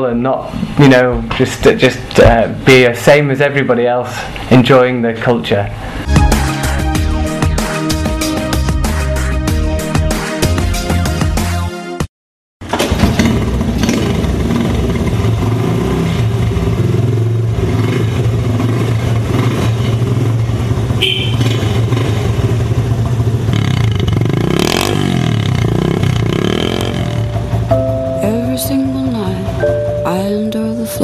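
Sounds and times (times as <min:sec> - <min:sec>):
motorbike kick-start: 0:12.7 - 0:14.8
motorbike engine running: 0:12.9 - 0:30.1.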